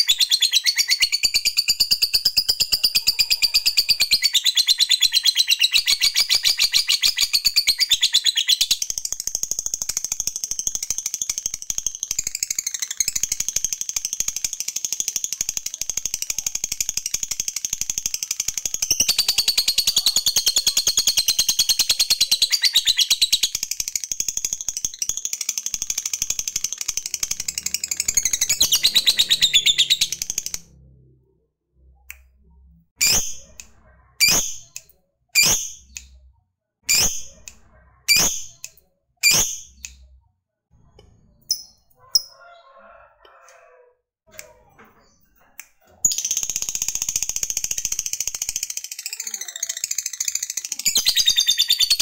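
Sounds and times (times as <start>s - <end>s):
sharp bird chirps: 0.0s - 30.7s, 33.0s - 36.2s, 36.9s - 40.2s, 45.0s - 52.0s
lovebird high trilling chatter: 15.4s - 30.7s, 33.0s - 34.8s, 35.4s - 36.0s, 36.9s - 39.9s, 46.0s - 52.0s.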